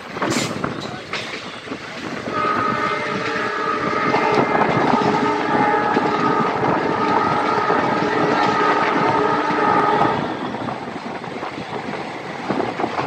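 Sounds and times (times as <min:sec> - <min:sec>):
locomotive horn blasts: 0:02.3 - 0:10.4.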